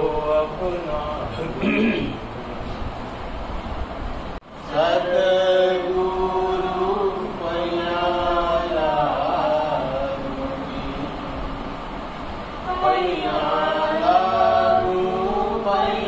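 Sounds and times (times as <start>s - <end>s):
group chanting devotional song: 4.5s - 16.0s.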